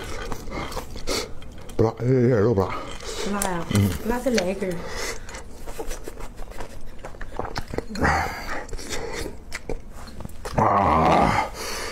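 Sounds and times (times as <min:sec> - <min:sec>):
wet chewing mouth clicks: 0:05.1 - 0:10.6.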